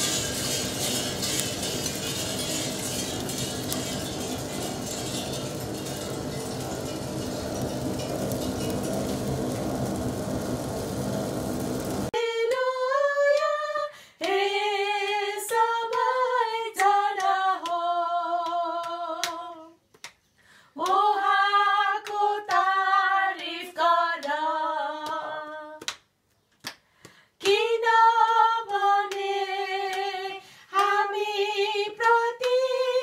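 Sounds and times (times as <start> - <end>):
coffee beans being stirred: 0.0 - 12.1
women singing: 12.2 - 19.8, 20.8 - 25.8, 27.4 - 33.0
hand claps: 16.8 - 21.1, 22.0 - 22.8, 24.2 - 27.8, 28.6 - 29.3, 30.8 - 31.0, 32.0 - 32.7.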